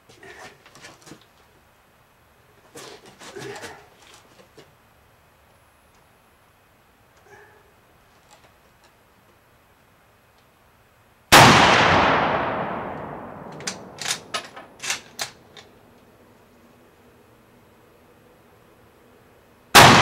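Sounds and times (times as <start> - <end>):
rifle shot: 11.3 - 14.4, 19.8 - 20.0
rifle bolt clicking: 13.5 - 15.4.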